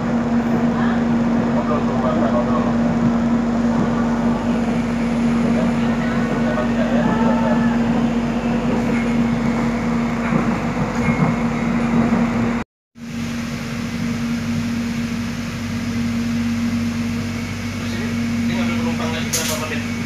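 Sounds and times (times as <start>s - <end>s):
train interior rumble: 0.0s - 20.0s.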